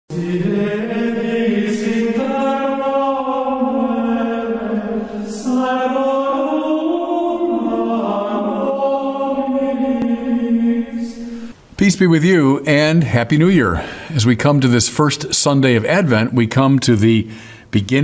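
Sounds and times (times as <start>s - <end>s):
religious chant singing: 0.1s - 18.0s.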